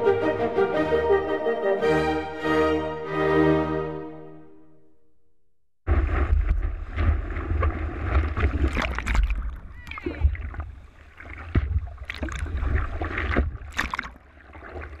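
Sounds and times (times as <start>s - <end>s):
water sloshing and splashing: 5.9s - 15.0s.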